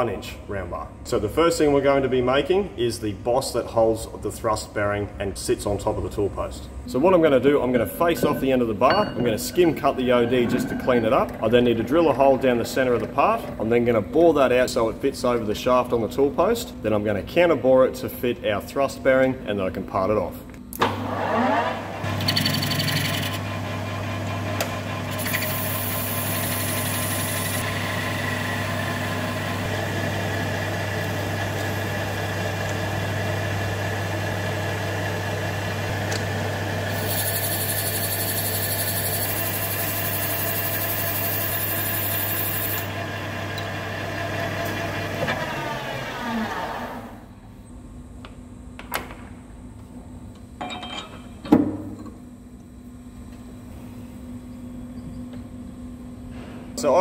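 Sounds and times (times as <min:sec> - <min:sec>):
lathe running: 0:22.0 - 0:47.1.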